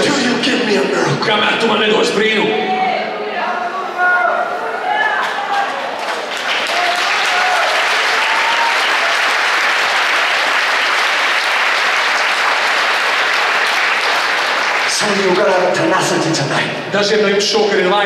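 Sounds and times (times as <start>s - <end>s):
congregation applauding: 5.2s - 16.1s.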